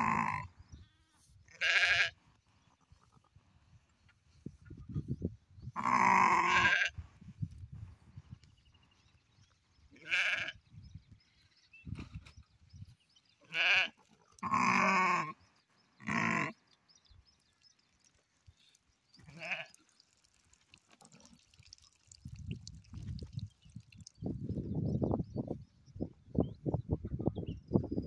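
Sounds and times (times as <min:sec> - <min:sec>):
sheep bleating: 0:01.5 - 0:02.2, 0:05.8 - 0:06.9, 0:10.0 - 0:10.6, 0:13.4 - 0:15.3, 0:16.0 - 0:16.5, 0:19.2 - 0:19.7.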